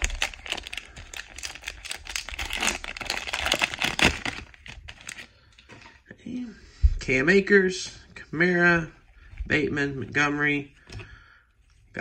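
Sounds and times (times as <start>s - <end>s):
card pack wrapper crinkling: 0.0s - 5.3s.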